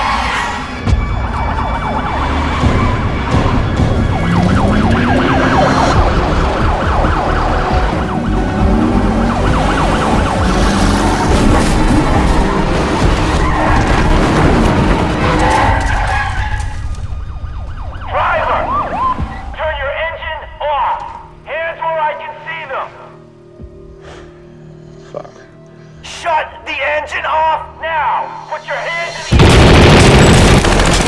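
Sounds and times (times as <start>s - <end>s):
police sirens wailing and yelping: 0.0s - 21.4s
car engines rumbling: 1.2s - 19.6s.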